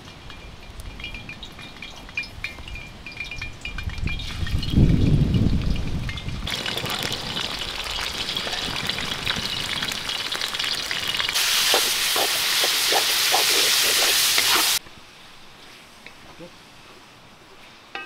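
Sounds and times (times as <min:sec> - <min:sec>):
meat sizzling in a pot: 0:06.4 - 0:14.8
wooden spatula scraping: 0:11.6 - 0:14.8.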